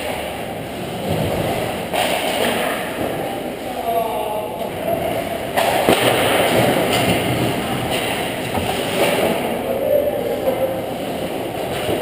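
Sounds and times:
hockey sticks clacking: 0:00.0 - 0:03.3, 0:05.5 - 0:09.7.

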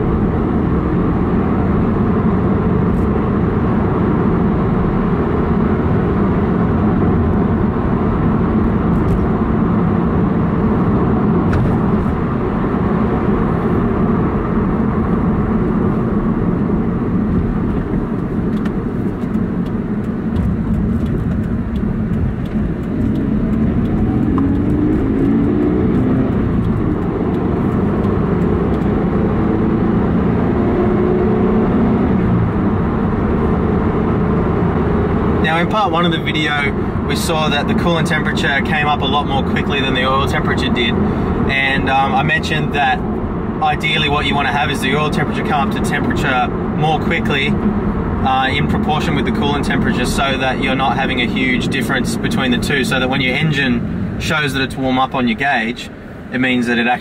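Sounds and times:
car engine droning in cabin: 0:00.0 - 0:57.0.

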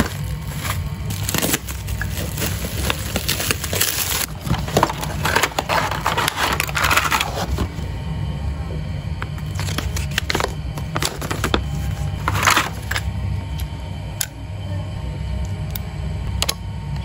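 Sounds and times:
plastic wrapping crinkling: 0:00.0 - 0:07.7
low hum: 0:00.0 - 0:17.0.

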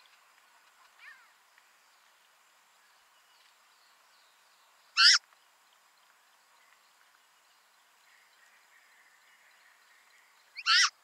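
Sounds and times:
faint birdsong of short chirps: 0:00.0 - 0:11.0.

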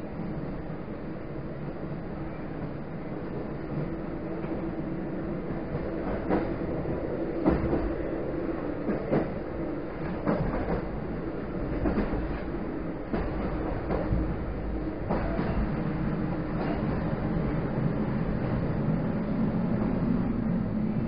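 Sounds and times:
electric train hum: 0:00.0 - 0:21.0
wheels clacking over rail joints: 0:08.6 - 0:15.8.

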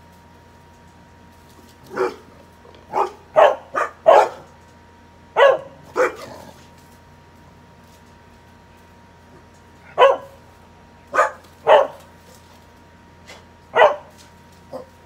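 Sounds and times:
dog barking: 0:01.9 - 0:02.3, 0:02.9 - 0:04.5, 0:05.4 - 0:06.3, 0:09.9 - 0:10.4, 0:11.1 - 0:12.1, 0:13.7 - 0:14.1.

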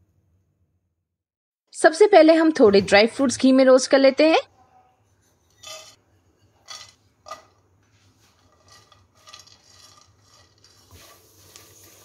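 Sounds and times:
spatula scraping pan: 0:05.2 - 0:07.5, 0:08.1 - 0:12.0.

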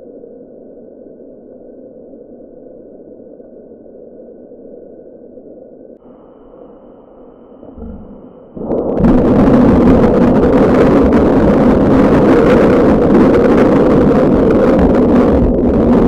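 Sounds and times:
heavy steady noise: 0:00.0 - 0:16.0
thunder crash: 0:07.6 - 0:16.0.

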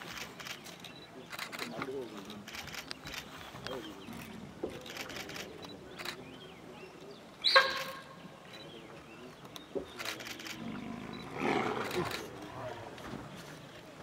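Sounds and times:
tigers growling: 0:10.0 - 0:13.1
tiger snarling: 0:10.4 - 0:12.9.

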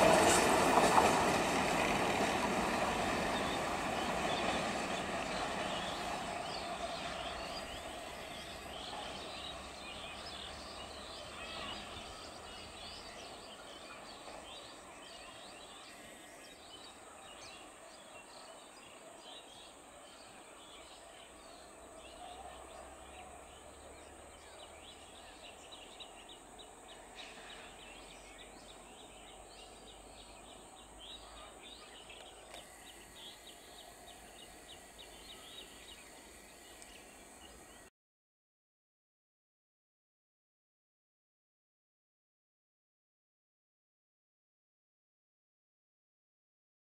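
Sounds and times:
faint outdoor background noise: 0:00.0 - 0:37.9
small birds chirping: 0:02.8 - 0:37.9.

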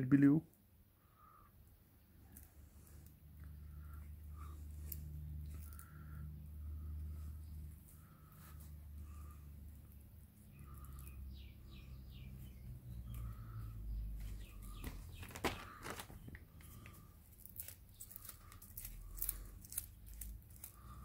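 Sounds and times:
wires clicking and crackling: 0:14.6 - 0:21.0.

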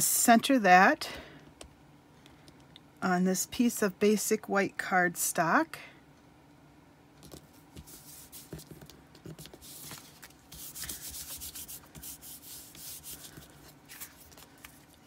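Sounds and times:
hand rubbing paper card: 0:07.3 - 0:15.0.

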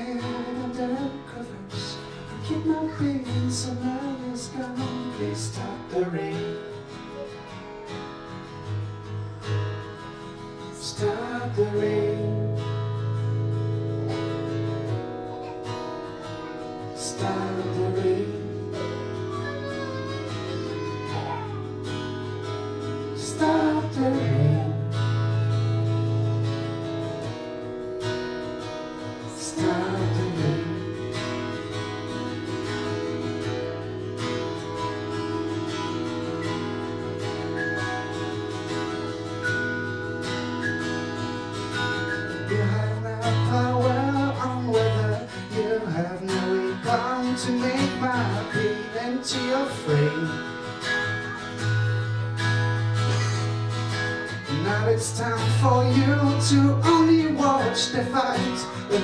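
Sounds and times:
person singing: 0:00.0 - 0:08.3, 0:10.8 - 0:12.7, 0:14.9 - 0:25.2, 0:29.2 - 0:31.5, 0:42.4 - 0:50.5, 0:54.5 - 0:59.0
held keyboard chords: 0:00.0 - 0:59.0
strummed acoustic guitar: 0:00.0 - 0:59.0.

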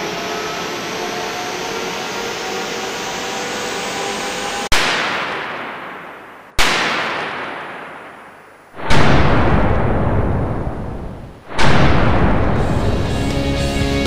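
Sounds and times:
sharp electric cracks with echo: 0:04.7 - 0:13.2
deep boom: 0:08.8 - 0:13.5.

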